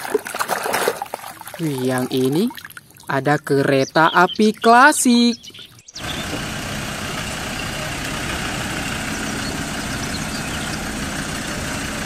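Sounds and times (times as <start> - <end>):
road train engine running: 6.0 - 12.0.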